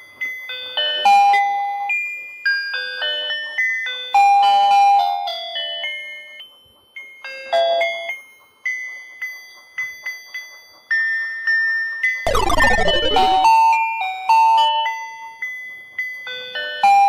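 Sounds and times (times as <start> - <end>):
electronic chime melody: 12.3 - 13.5.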